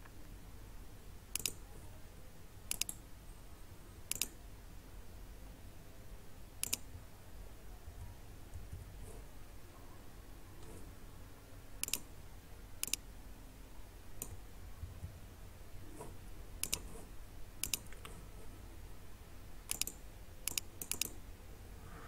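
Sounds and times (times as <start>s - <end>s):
faint low hum: 0.0s - 22.0s
mouse and keyboard clicks: 1.3s - 1.6s, 2.7s - 3.0s, 4.1s - 4.4s, 6.6s - 6.9s, 11.8s - 12.1s, 12.8s - 13.0s, 16.0s - 18.2s, 19.7s - 21.2s.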